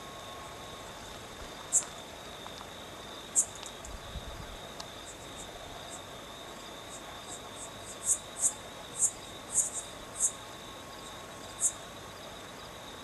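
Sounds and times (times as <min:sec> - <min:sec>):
high-pitched hum: 0:00.0 - 0:01.2
insects chirping: 0:00.0 - 0:13.0.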